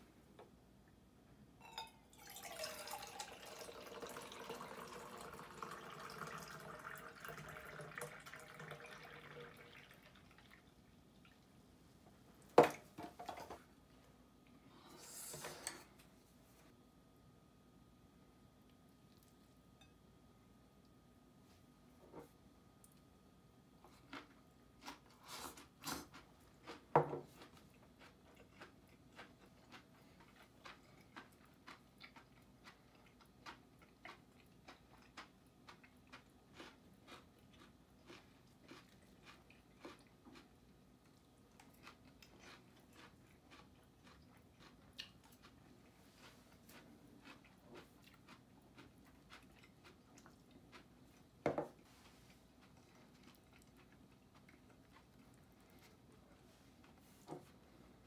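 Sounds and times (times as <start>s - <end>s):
chewing crisp vegetables: 23.7s - 58.0s.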